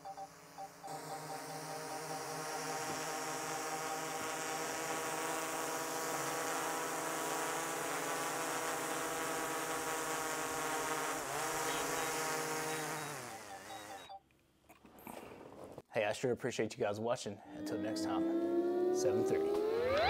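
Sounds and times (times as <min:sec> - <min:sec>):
drone propeller hum: 0:00.0 - 0:14.1.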